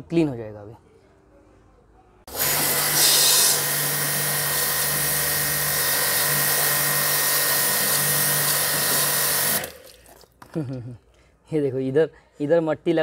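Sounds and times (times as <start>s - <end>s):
pressure washer spray hissing: 2.3s - 9.7s
motor and pump hum: 2.3s - 10.0s.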